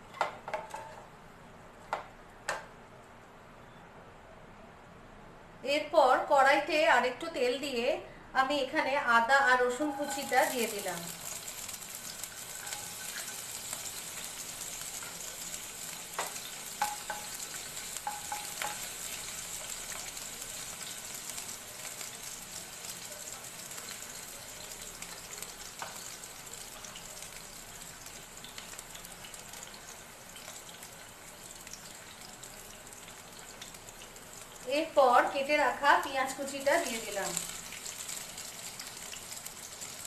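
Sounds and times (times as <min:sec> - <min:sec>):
food sizzling in hot oil: 0:09.2 - 0:40.0.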